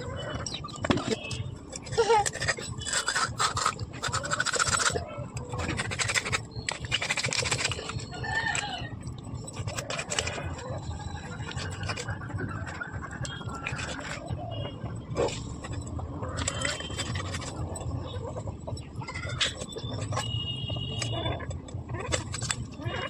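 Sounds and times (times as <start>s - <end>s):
hands and knife cleaning fish: 0.2s - 14.4s.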